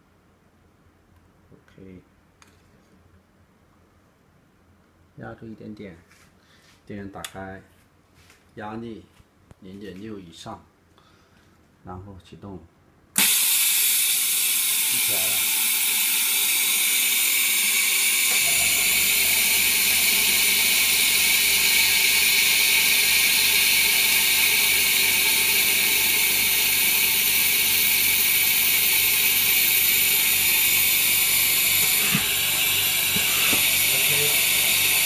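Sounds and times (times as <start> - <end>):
air compressor hissing: 13.2 - 35.0.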